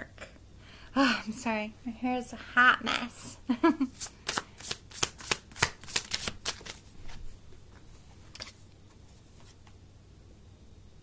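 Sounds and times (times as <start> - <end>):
cards being shuffled: 3.9 - 9.7.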